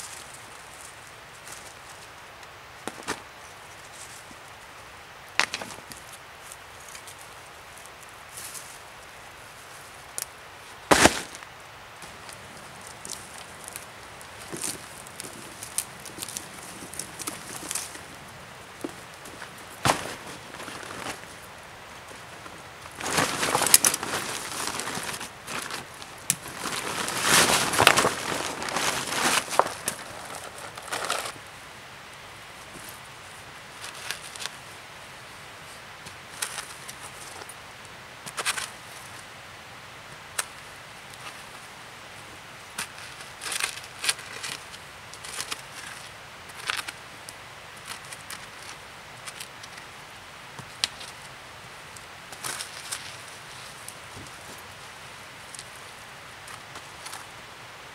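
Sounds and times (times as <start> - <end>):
wood scraping against earth: 10.8 - 31.4
nylon sack rustling: 10.9 - 11.5, 19.2 - 31.4.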